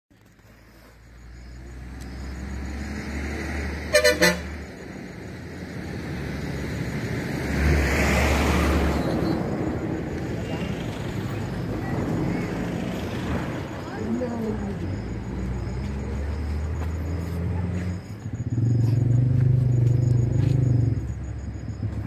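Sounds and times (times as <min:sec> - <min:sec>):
road noise: 0:00.1 - 0:22.0
vehicle horn toots: 0:03.8 - 0:04.6.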